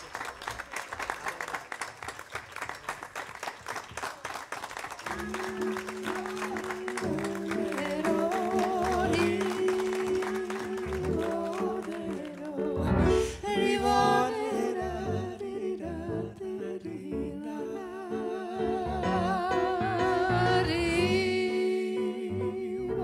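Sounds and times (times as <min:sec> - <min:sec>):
held accompaniment notes: 0:05.1 - 0:23.0
person singing with vibrato: 0:05.1 - 0:23.0.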